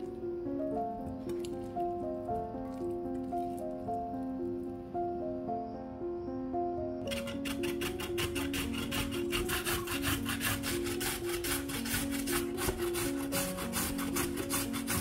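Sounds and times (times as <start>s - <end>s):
carrot grating on metal grater: 7.1s - 15.0s.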